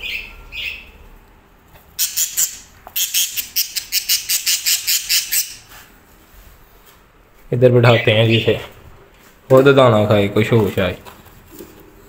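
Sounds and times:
parakeet chirps and squawks: 0.0 - 0.9, 2.0 - 5.6.

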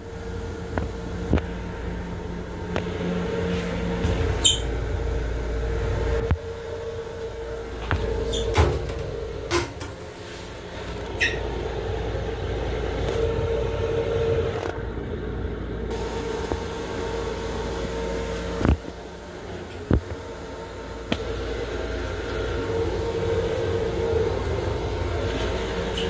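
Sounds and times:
train interior rumble and hum: 0.0 - 26.0
sharp clicks and squeaks: 4.4 - 4.7, 10.9 - 11.4.

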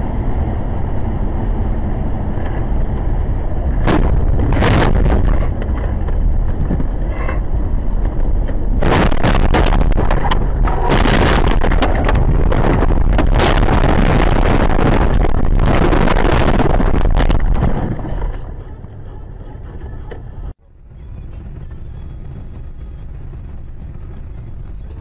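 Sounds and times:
car road and engine noise: 0.0 - 25.0
wind buffeting microphone: 0.0 - 25.0
vehicle crashing and tumbling: 2.2 - 20.6.

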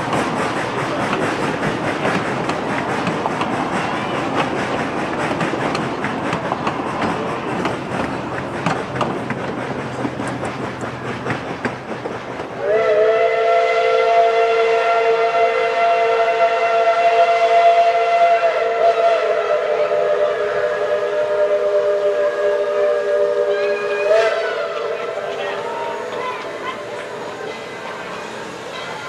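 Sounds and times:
railroad cars clattering: 0.0 - 14.5, 20.9 - 29.0
steam locomotive chime whistle: 12.6 - 29.0.

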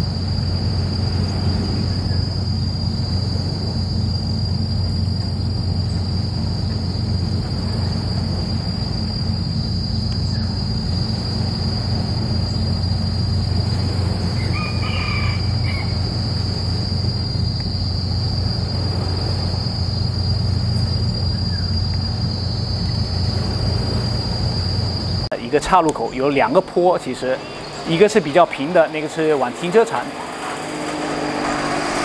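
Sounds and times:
high-pitched insect buzz: 0.0 - 25.3
low rumble: 0.0 - 25.5
rooster crowing: 14.2 - 16.9.

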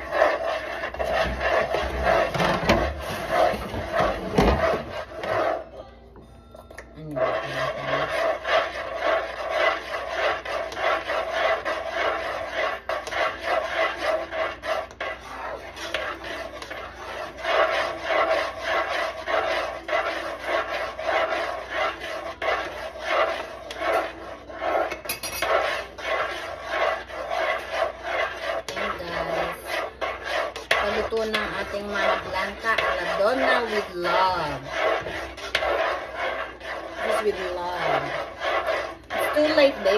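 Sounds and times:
utensil scraping cooking pot: 0.0 - 5.8, 6.8 - 39.9.

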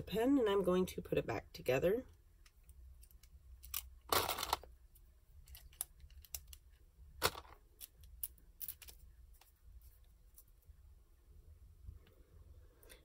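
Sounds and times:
plastic pen parts clicking: 2.4 - 9.5.

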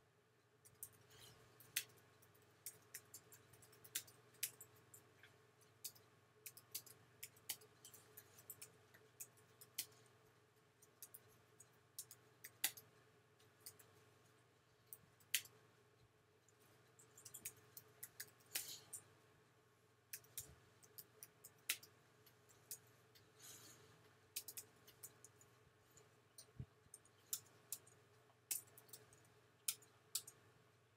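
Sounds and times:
faint electrical hum: 0.0 - 30.9
computer keyboard typing: 1.6 - 5.1, 5.8 - 10.0, 17.0 - 18.4, 24.3 - 25.4.

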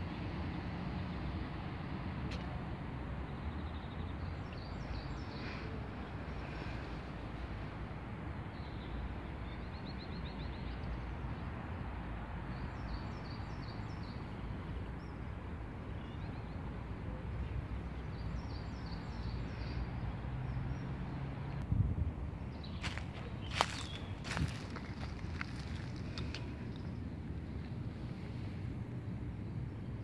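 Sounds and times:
birds chirping: 22.4 - 27.7.

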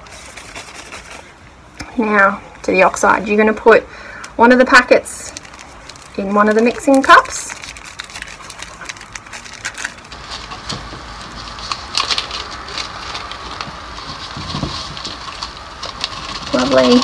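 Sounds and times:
plastic packet crinkling: 5.0 - 17.0.

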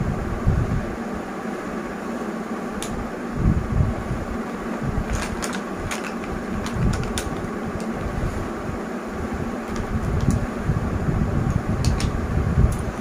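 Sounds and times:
steady whooshing background noise: 0.0 - 13.0
plastic clicks of lipstick cases: 5.1 - 8.0.

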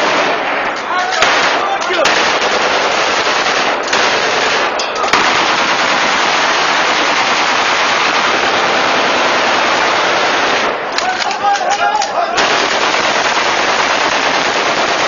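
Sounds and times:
rapid rifle gunfire: 0.0 - 11.7, 12.4 - 15.0.

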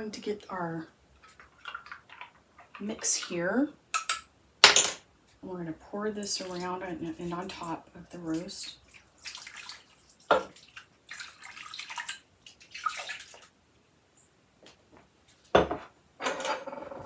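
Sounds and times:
liquid pouring and splashing: 1.3 - 2.8, 6.4 - 13.5.

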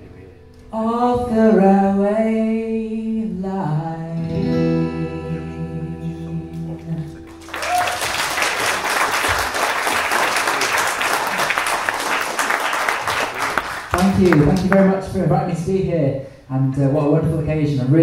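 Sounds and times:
audience applause: 7.3 - 14.8.

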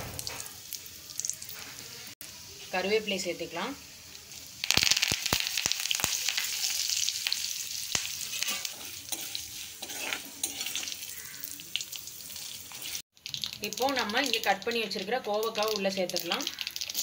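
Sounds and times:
leaves sizzling in hot oil: 0.0 - 17.0
spatula stirring in oil: 4.4 - 17.0.

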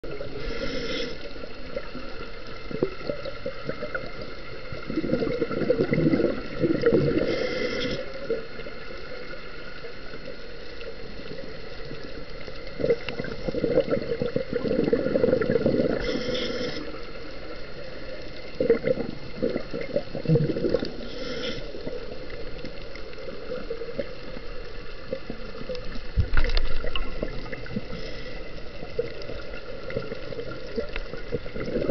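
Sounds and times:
gurgling exhaled bubbles: 0.0 - 8.6, 11.2 - 17.3, 18.0 - 31.9
scuba regulator inhale hiss: 0.2 - 1.4, 7.0 - 8.2, 15.8 - 17.1, 20.9 - 22.0, 27.8 - 28.8.

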